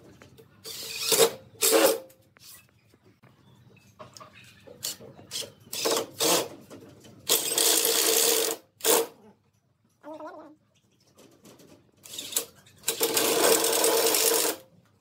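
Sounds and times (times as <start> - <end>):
cordless drill driving screws: 0.7 - 2.0, 12.0 - 14.6.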